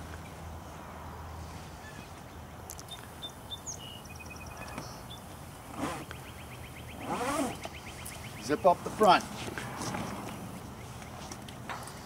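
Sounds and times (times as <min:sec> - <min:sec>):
outdoor background noise: 0:00.0 - 0:12.0
zipper closing: 0:05.7 - 0:06.1, 0:07.0 - 0:07.6.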